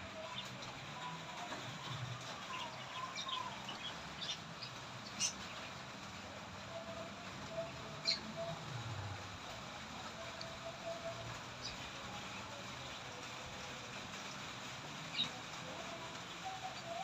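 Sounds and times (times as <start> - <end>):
small birds chirping: 2.2 - 5.9.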